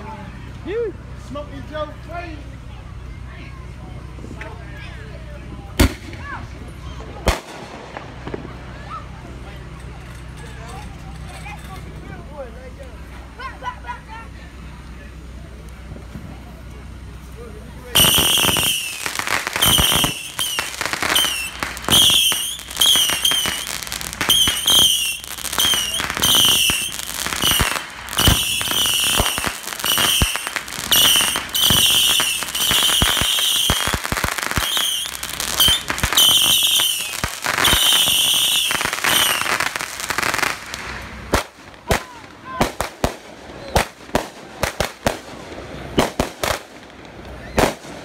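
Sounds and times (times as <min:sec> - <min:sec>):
firework pops and crackling: 0:05.8 - 0:06.3, 0:07.2 - 0:09.2, 0:18.0 - 0:48.0
whistling firework shots: 0:18.0 - 0:48.0.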